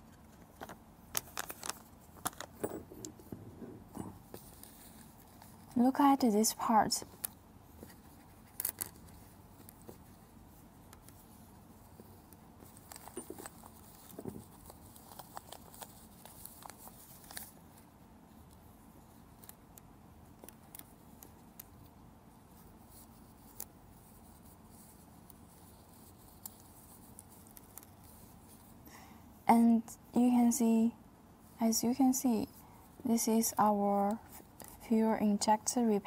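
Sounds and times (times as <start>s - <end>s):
gloved hands handling rubber rings: 0.0s - 6.0s, 6.6s - 28.8s.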